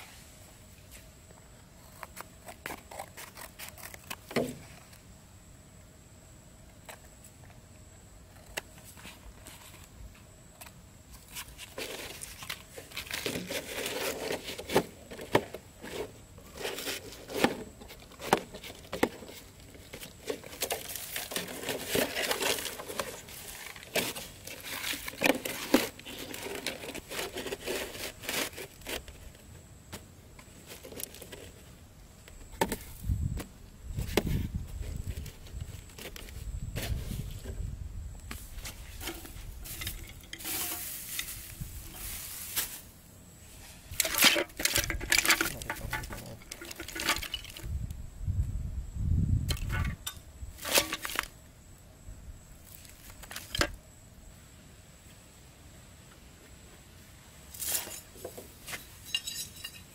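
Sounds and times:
plastic bottle crinkling: 44.0s - 47.7s.

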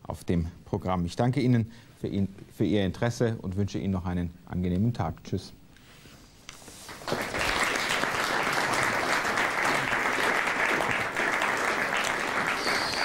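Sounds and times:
studio audience applauding: 6.9s - 13.0s.

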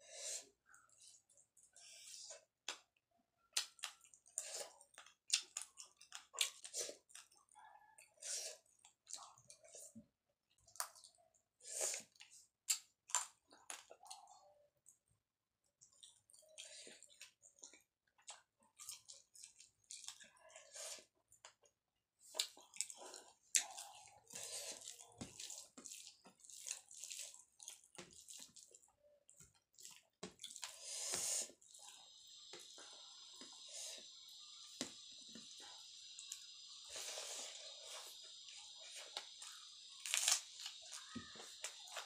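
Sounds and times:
chewing and mouth clicks: 2.6s - 9.9s, 11.8s - 20.4s, 21.3s - 30.8s
wet squelching of food: 15.7s - 34.0s.

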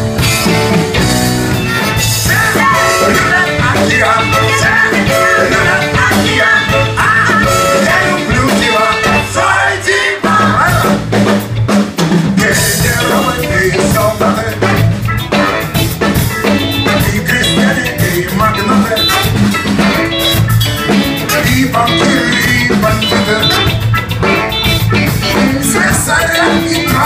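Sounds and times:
bass: 0.0s - 27.0s
drum kit: 0.0s - 27.0s
baritone saxophone: 1.5s - 9.2s, 13.0s - 27.0s
trumpet: 1.5s - 9.6s, 14.4s - 16.0s, 18.5s - 27.0s.

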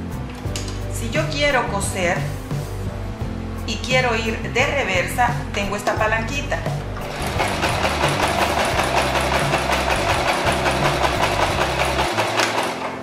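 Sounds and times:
sewing machine stitching: 7.0s - 13.0s.

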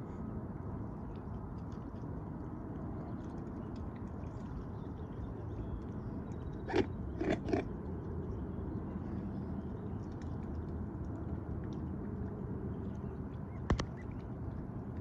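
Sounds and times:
low background rumble: 0.0s - 15.0s
swans dabbling and pecking: 0.1s - 15.0s.

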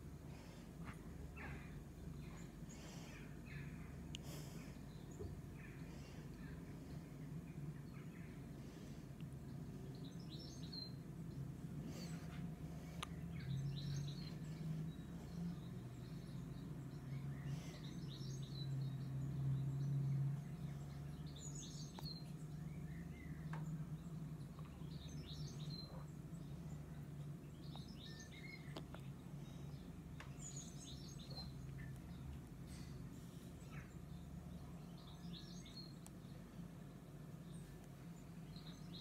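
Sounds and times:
songbirds chirping through speakers: 0.0s - 39.0s
steady low hum: 0.0s - 39.0s.

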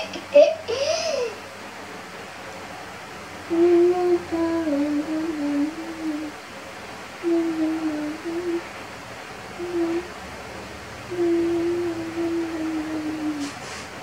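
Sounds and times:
person humming a tune: 3.5s - 6.4s, 7.2s - 8.7s, 9.6s - 10.1s, 11.1s - 13.6s.

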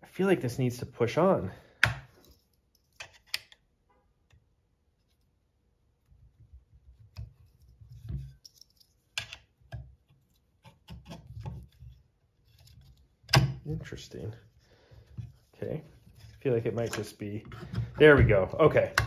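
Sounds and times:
metal parts clicking and scraping: 7.6s - 9.4s.

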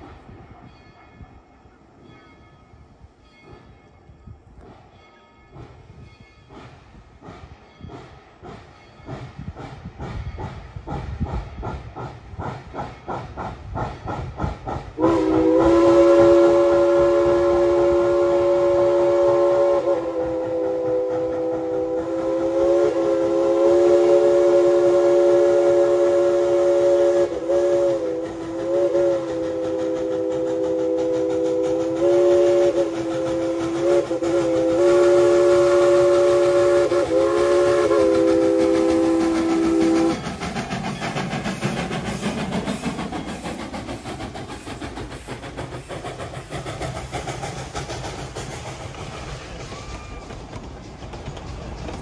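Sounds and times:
train cars rumbling and clattering: 0.0s - 52.0s
steam locomotive whistle blasts: 15.0s - 44.8s.

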